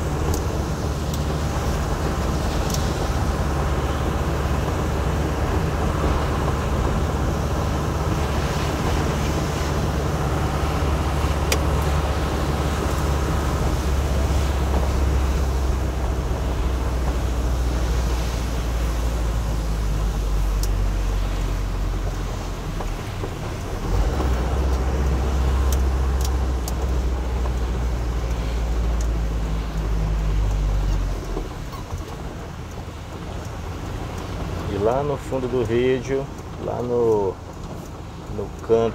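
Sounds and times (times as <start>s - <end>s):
tyres hissing on wet road: 0.0s - 38.9s
vehicle engine droning: 0.0s - 38.9s
faint ticks: 24.2s - 33.6s.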